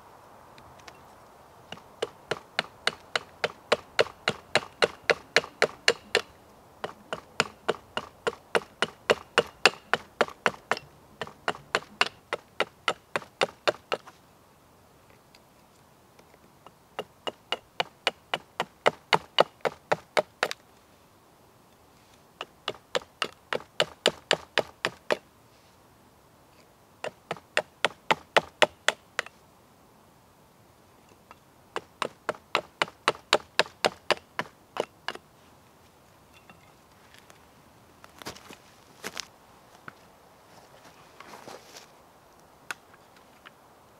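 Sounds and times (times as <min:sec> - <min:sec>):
hatchet knocking into wood: 0:01.7 - 0:14.0.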